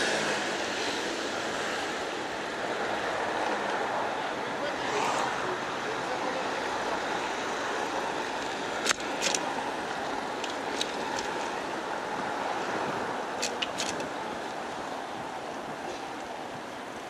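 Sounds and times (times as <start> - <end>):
street noise: 0.0 - 17.0
sharp clicks and knocks: 8.4 - 9.5, 13.4 - 14.1.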